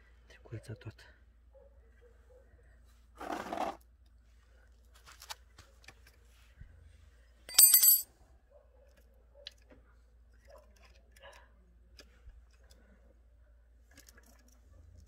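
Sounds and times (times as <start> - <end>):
metallic jingle with ringing: 7.5 - 8.0.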